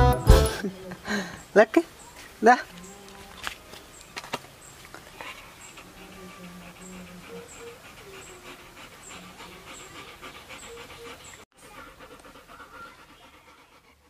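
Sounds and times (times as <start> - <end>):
dog panting: 5.0 - 14.0.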